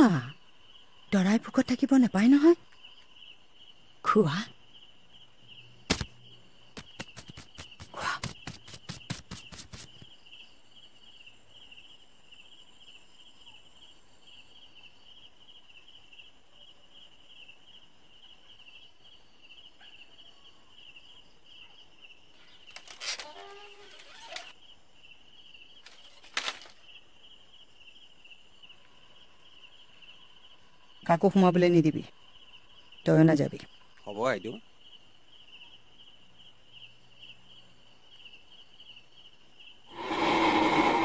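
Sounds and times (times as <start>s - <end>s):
crickets chirping: 0.0s - 41.0s
rustling: 6.8s - 10.1s, 25.8s - 26.8s.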